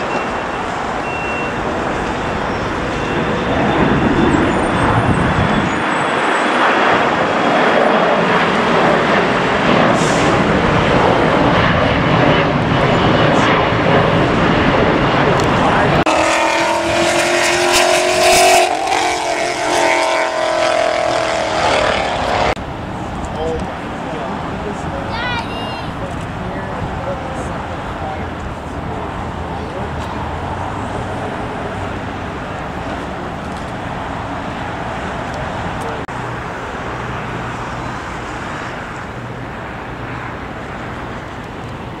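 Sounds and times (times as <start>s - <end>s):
engine drone: 0.0s - 42.0s
rushing noise: 0.0s - 42.0s.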